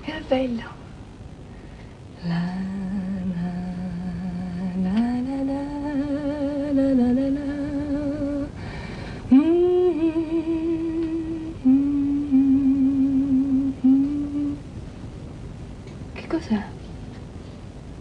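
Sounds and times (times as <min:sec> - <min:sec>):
woman humming: 0:02.2 - 0:08.6, 0:09.3 - 0:14.6.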